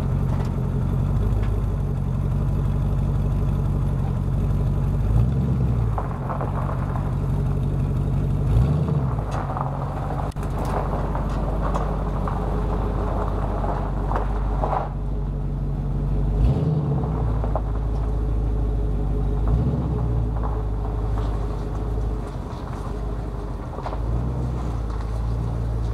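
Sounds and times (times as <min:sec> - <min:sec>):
truck engine rumbling: 0:00.0 - 0:25.9.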